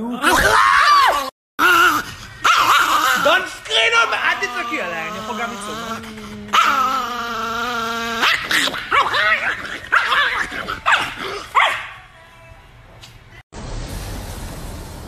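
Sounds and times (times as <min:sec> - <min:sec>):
man howling: 0:00.0 - 0:08.3
small dog howling: 0:00.3 - 0:11.3
dog yapping and barking: 0:01.6 - 0:03.4, 0:04.1 - 0:12.0.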